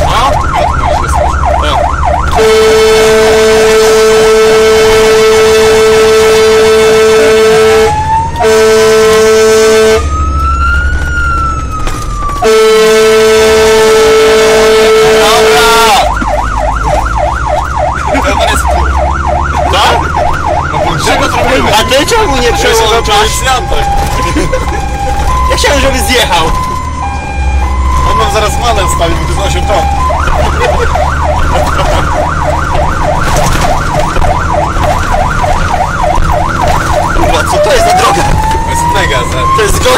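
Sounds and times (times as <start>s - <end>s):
low engine drone: 0.0s - 39.6s
wail siren: 0.0s - 39.9s
fire engine air horns: 2.2s - 10.2s, 12.4s - 20.6s.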